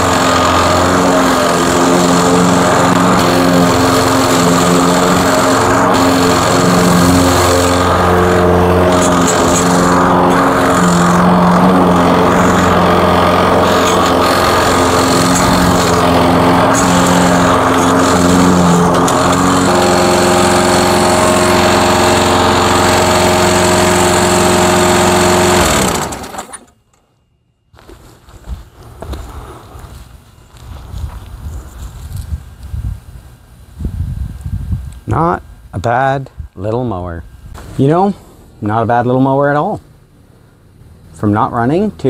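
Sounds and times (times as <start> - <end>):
engine winding down: 0.0 - 26.8
lawn mower engine running: 0.0 - 26.9.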